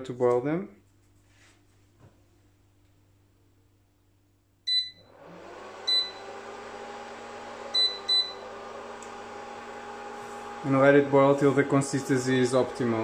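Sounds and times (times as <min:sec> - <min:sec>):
short electronic beeps: 0:04.7 - 0:05.0
cooling fan humming: 0:04.7 - 0:13.0.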